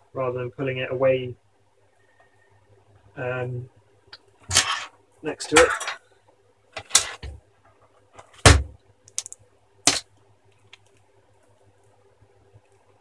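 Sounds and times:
laptop screen panel knocks and clicks: 0:08.4 - 0:10.0.

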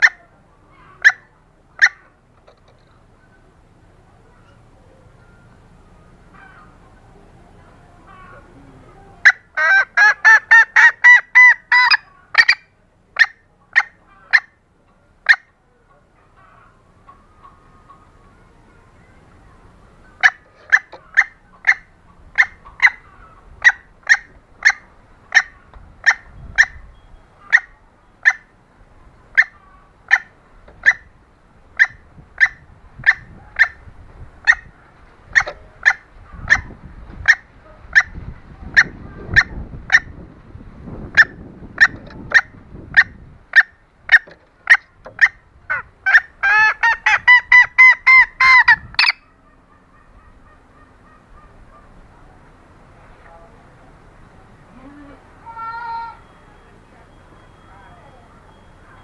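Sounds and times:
junglefowl clucking: 0:00.0 - 0:03.5, 0:04.3 - 0:18.7, 0:19.8 - 0:40.4, 0:41.0 - 0:52.6
high ringing bird calls: 0:19.9 - 0:28.5, 0:55.6 - 0:59.0.

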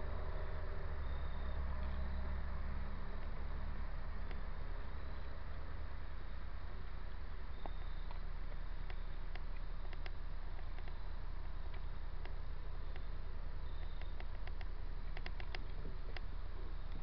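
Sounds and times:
background hiss and low rumble: 0:00.0 - 0:17.0
soft clicks: 0:07.6 - 0:11.0, 0:13.8 - 0:16.3.

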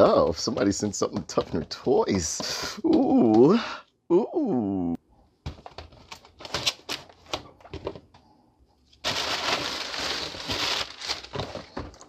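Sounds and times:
packaging ripping: 0:09.0 - 0:11.7.

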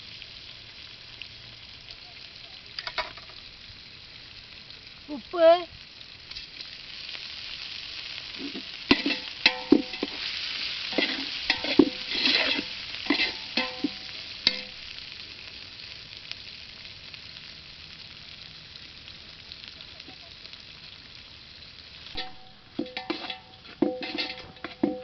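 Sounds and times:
onions sizzling in hot oil: 0:00.0 - 0:25.0
metal ladle scraping a pot: 0:08.4 - 0:10.3, 0:10.9 - 0:14.7, 0:22.2 - 0:25.0.

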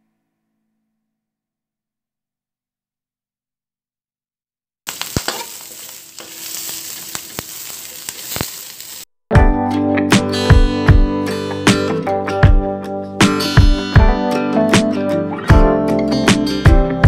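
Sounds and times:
onion sizzling in a wok: 0:04.9 - 0:09.1
acoustic guitar music: 0:09.4 - 0:17.0.

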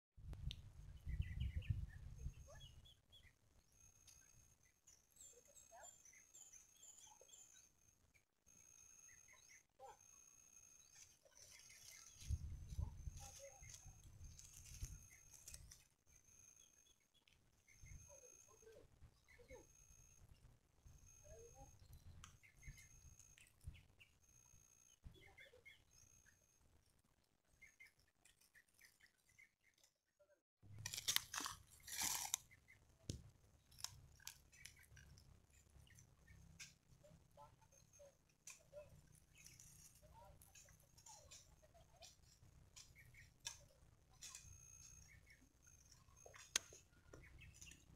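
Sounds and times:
scattered chirps: 0:01.2 - 0:26.6, 0:33.6 - 0:47.9
leaves crackling and rustling: 0:13.1 - 0:15.8, 0:30.8 - 0:32.4.

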